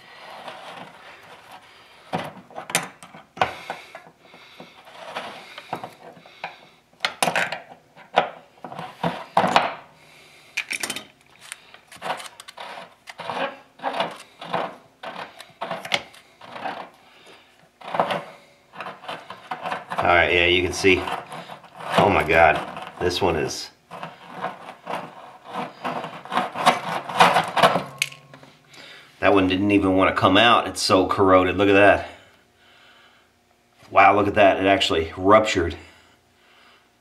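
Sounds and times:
metal threads scraping: 0.0s - 9.7s, 10.6s - 28.2s.

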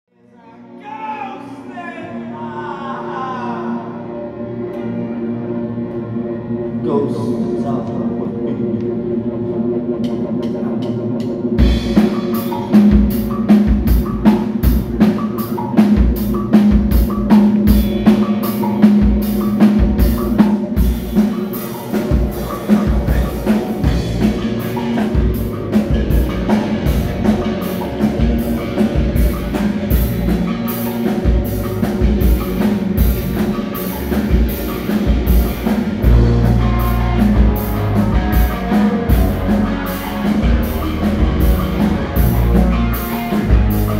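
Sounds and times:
drum and cymbal beat: 11.2s - 43.9s.

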